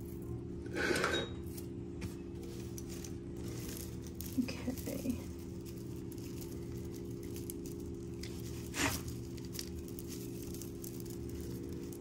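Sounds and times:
steady low hum: 0.0 - 12.0
jewelry scraping on table: 0.6 - 1.4
jewelry rustling and clicking: 2.4 - 12.0.

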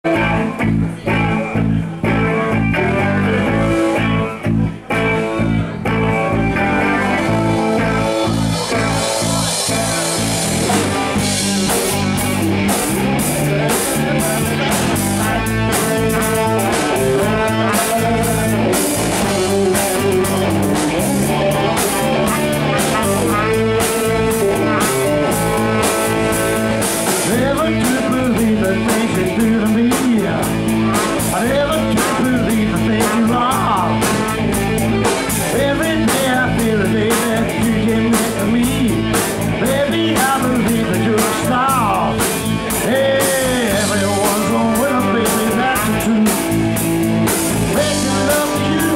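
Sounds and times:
bass guitar: 0.0 - 48.9
electric guitars: 0.0 - 48.9
drum kit with cymbals: 0.1 - 48.9
man singing into a microphone: 13.5 - 34.5, 35.4 - 46.7, 47.6 - 48.9
saxophone: 15.2 - 27.3.

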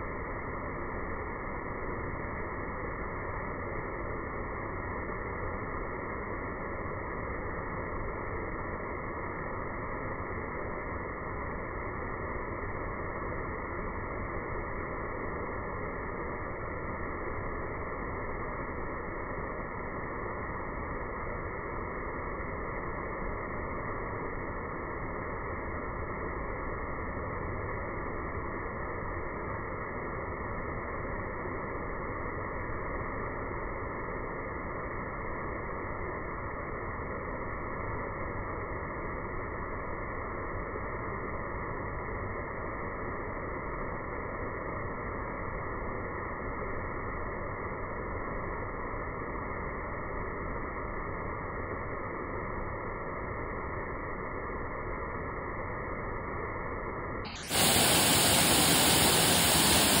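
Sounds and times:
waterfall rushing into pool: 57.3 - 60.0.

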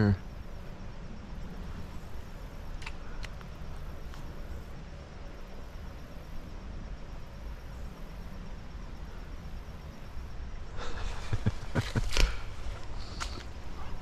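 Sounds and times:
light clicks: 2.8 - 3.5.

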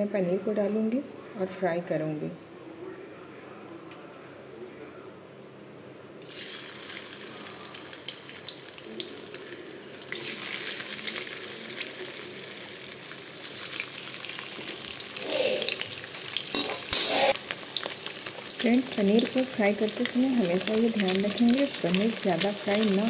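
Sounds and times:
cheese cubes sizzling in hot oil: 6.2 - 23.0
metal spoon scraping pan: 16.5 - 17.4.

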